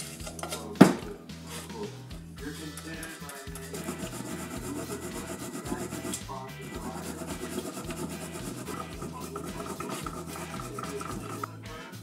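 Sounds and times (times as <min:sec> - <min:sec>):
background music with bass line: 0:00.0 - 0:12.0
brush scrubbing wet metal: 0:02.4 - 0:11.5.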